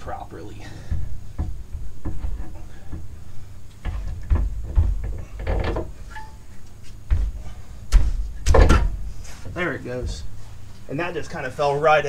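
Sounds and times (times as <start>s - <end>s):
dull thuds: 0.0s - 6.1s, 6.8s - 10.5s
metal clunks: 0.0s - 10.3s.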